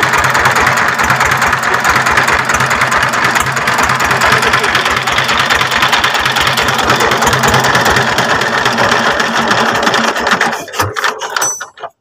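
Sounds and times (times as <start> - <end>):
diesel engine running: 0.0 - 11.4.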